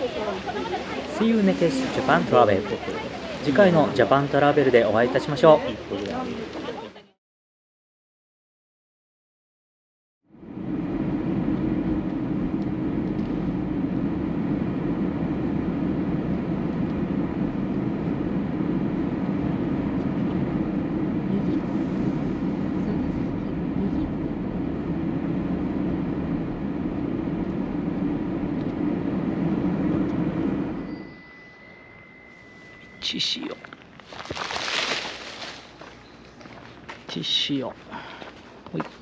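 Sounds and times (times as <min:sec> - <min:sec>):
vehicle running rumble: 0:10.3 - 0:30.9.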